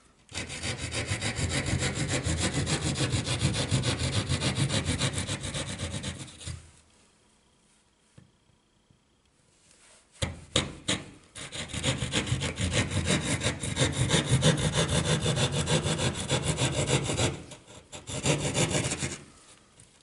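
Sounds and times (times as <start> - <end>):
hand saw cutting drywall: 0.0 - 6.7, 10.2 - 19.5.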